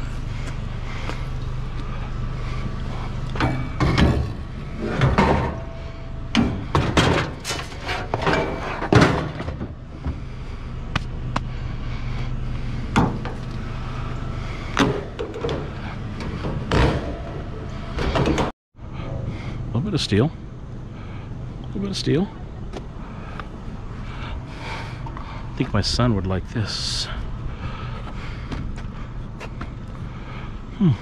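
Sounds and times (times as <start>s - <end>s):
vehicle engine idling: 0.0s - 31.0s
scrap steel clanking: 3.4s - 9.8s.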